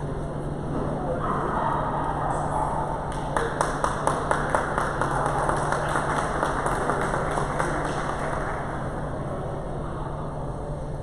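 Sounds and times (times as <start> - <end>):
hands clapping: 3.0 - 9.0.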